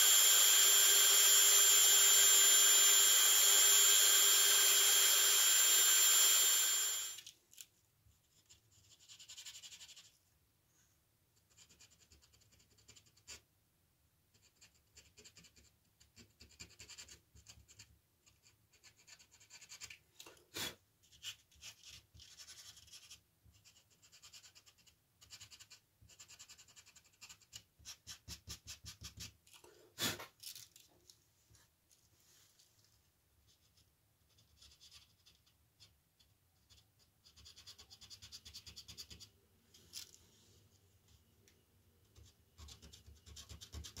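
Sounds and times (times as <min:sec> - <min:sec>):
rotary tool whining: 0:00.0 - 0:07.3.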